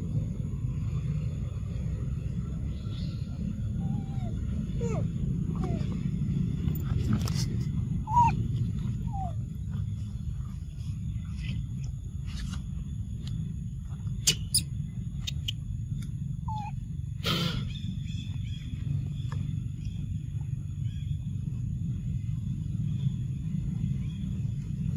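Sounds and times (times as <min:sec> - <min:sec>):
steady low rumble: 0:00.0 - 0:24.9
monkey squeaks: 0:08.1 - 0:08.4, 0:14.2 - 0:15.6, 0:16.5 - 0:16.8.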